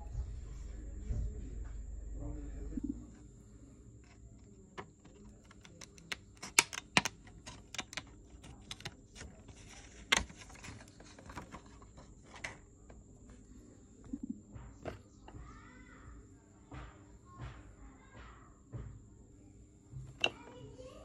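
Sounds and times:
scissors snipping plastic: 5.3s - 9.0s.

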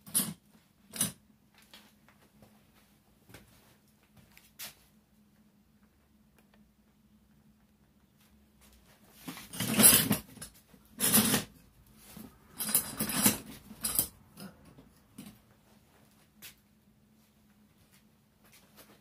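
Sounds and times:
faint steady hum: 0.0s - 19.0s
seat rustling and scraping: 8.8s - 14.1s.

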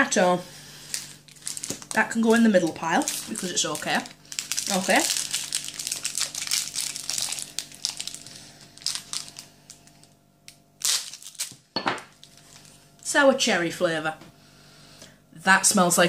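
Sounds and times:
packaging crinkling: 0.8s - 12.8s.

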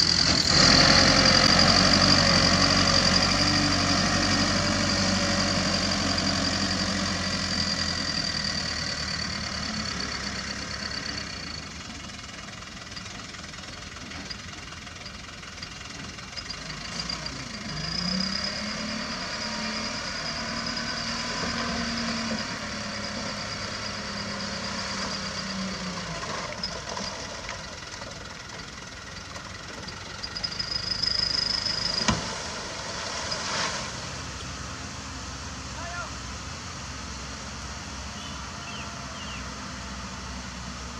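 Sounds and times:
diesel engine revving: 0.0s - 40.9s.

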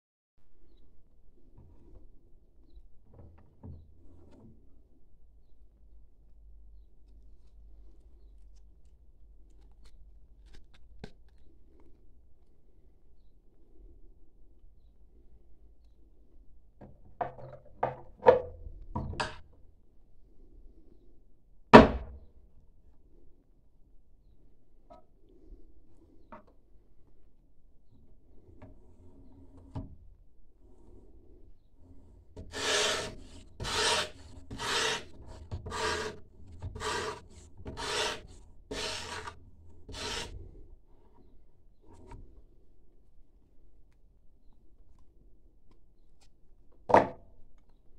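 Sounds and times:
sandpaper scraping knife blade: 32.5s - 36.2s, 36.8s - 40.4s.

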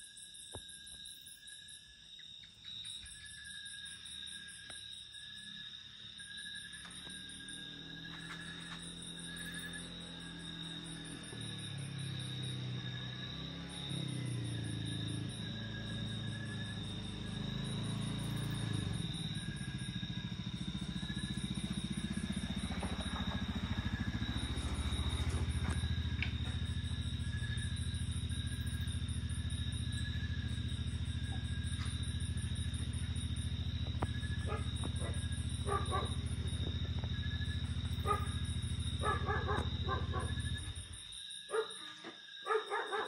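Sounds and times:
insects chirping: 0.0s - 43.0s
insects trilling: 0.0s - 43.0s
vehicle engine rumbling: 6.8s - 41.1s.

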